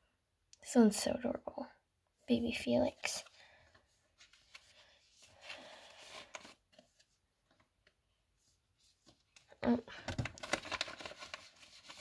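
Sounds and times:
plastic sleeves rustling: 2.8 - 12.0.

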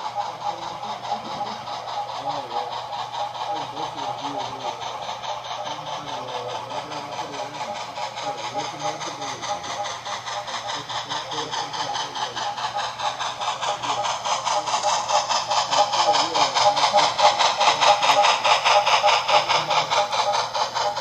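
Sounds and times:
model steam locomotive chuffing: 0.0 - 21.0.

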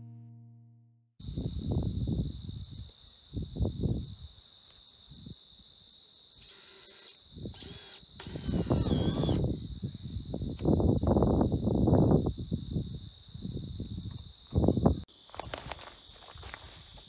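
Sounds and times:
power drill motor whining: 6.4 - 9.5.

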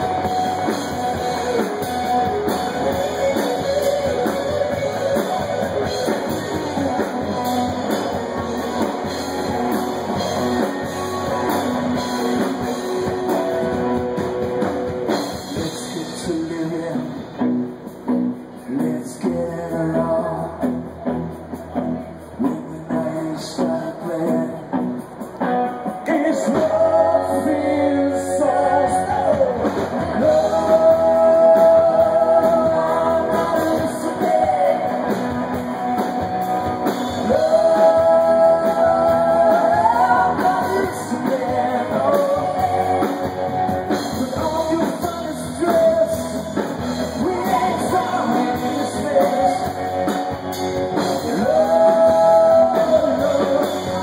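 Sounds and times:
live rock band playing: 0.0 - 54.0
person singing: 26.0 - 54.0.

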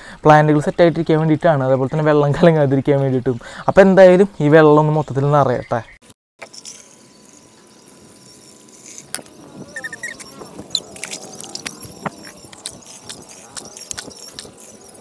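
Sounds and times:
high chirps: 6.5 - 15.0.

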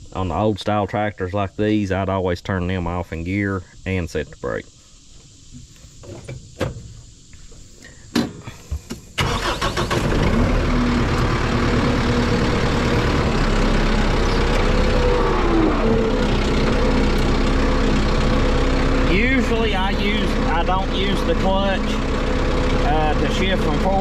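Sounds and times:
tractor diesel engine idling: 9.2 - 24.0.

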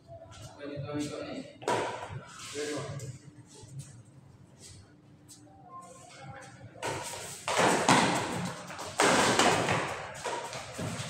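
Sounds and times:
rackets striking shuttlecock: 6.8 - 11.0.

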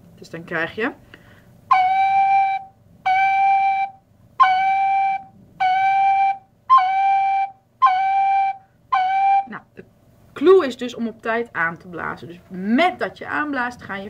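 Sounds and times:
tin whistle notes: 1.7 - 9.6.

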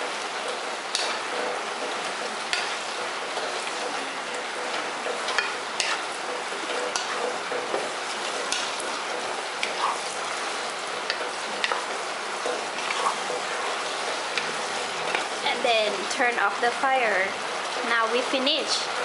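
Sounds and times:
food sizzling in a pot: 0.0 - 19.0
wooden spatula scraping a pot: 4.7 - 16.6.

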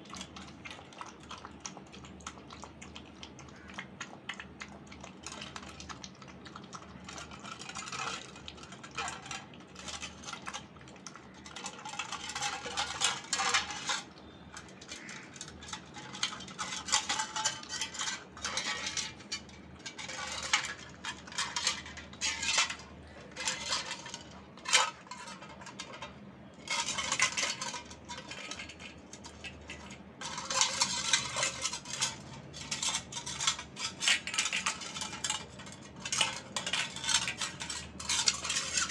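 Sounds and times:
puppy lapping milk: 0.0 - 26.3
metal bowl clinking: 7.1 - 38.9.

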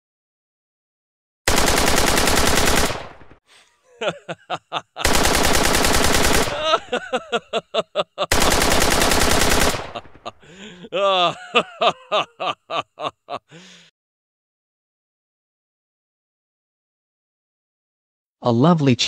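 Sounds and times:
submachine gun bursts: 1.5 - 3.3, 5.0 - 6.6, 8.3 - 10.2
man laughing: 3.5 - 5.6, 6.3 - 13.9.

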